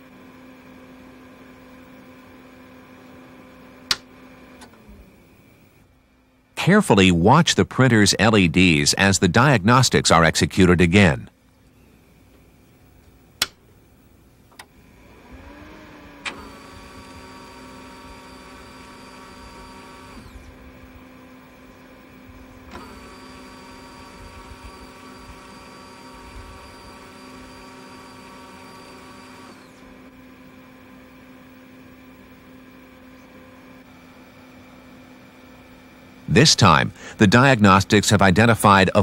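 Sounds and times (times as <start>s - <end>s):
printer hum: 0.0s - 11.2s, 13.8s - 39.0s
printer motors whirring: 14.6s - 36.2s.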